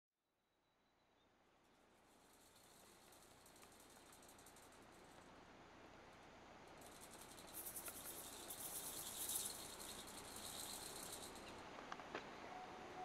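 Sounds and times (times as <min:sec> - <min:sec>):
insects trilling: 0:01.9 - 0:05.3, 0:06.7 - 0:11.6.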